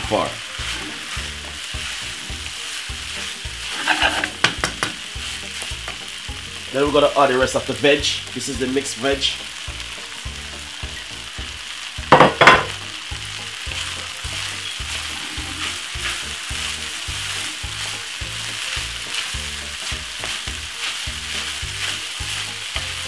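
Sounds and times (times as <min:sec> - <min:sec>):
rice sizzling in a frying pan: 0:00.0 - 0:23.0
wooden spoon stirring: 0:00.3 - 0:06.8, 0:13.9 - 0:23.0.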